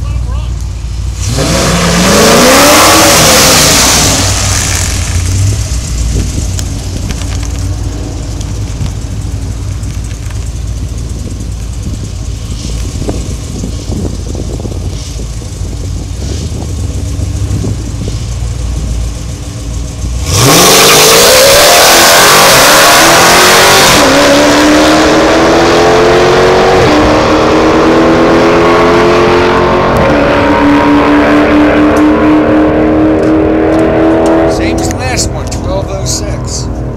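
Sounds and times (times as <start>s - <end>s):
drag car accelerating through upshifts: 1.2s - 36.9s
drag car engine idling: 4.5s - 20.4s.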